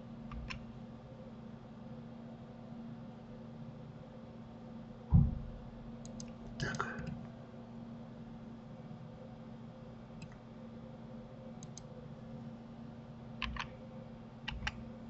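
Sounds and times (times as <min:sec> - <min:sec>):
steady low hum: 0:00.0 - 0:15.0
computer mouse and keyboard clicks: 0:00.3 - 0:00.6, 0:06.0 - 0:07.2, 0:11.6 - 0:11.9, 0:13.4 - 0:13.8, 0:14.4 - 0:14.8.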